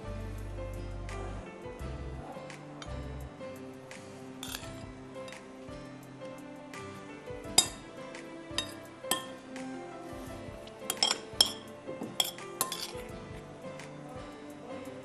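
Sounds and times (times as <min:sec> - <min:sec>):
soft background music: 0:00.0 - 0:15.0
spoon and fork clinking on glass bowl: 0:04.4 - 0:05.4, 0:07.5 - 0:07.9, 0:08.6 - 0:09.4, 0:10.8 - 0:13.1.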